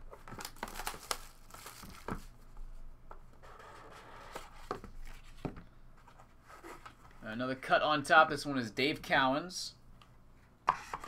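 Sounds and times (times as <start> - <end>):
wrapping crinkling and tearing: 0.1 - 2.3.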